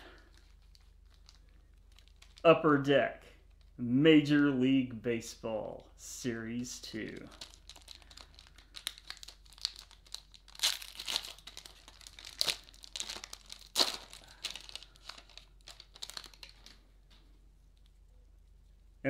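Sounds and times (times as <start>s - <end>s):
foil wrapper tearing and crinkling: 0.0s - 2.5s, 6.9s - 16.8s.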